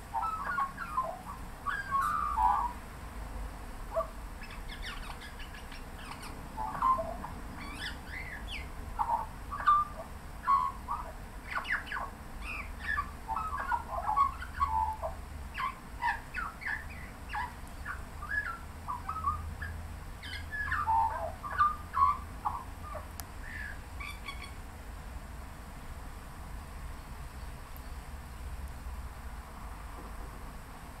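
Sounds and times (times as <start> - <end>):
magpie warbling song: 0.1 - 2.8, 3.9 - 24.6.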